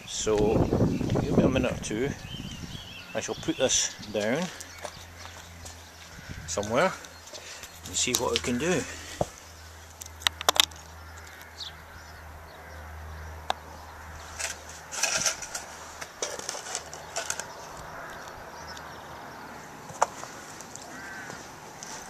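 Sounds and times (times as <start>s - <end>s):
bird chirps: 0.0s - 14.9s
footsteps on gravel: 3.6s - 11.4s, 14.2s - 19.0s, 19.6s - 22.0s
sharp clicks: 9.9s - 11.5s.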